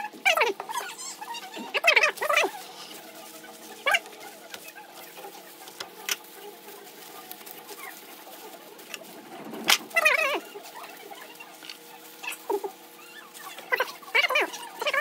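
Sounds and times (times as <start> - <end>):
bird-like animal call: 7.7 - 15.0.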